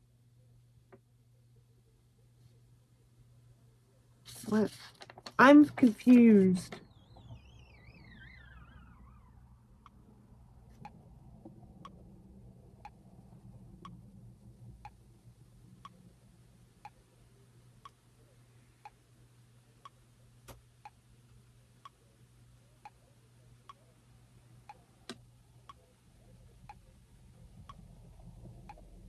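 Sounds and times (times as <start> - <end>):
low steady hum: 0.0 - 29.0
clock ticking faintly: 13.7 - 14.2, 14.8 - 15.0, 18.8 - 19.0, 24.6 - 29.0.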